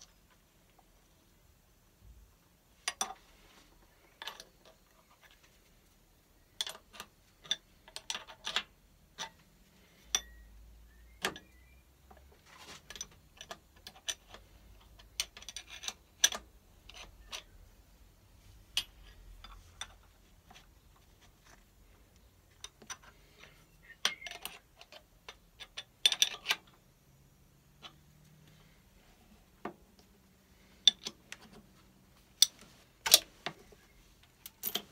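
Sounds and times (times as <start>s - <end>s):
metallic clicks of hand tools: 12.9s - 17.6s, 22.6s - 26.8s.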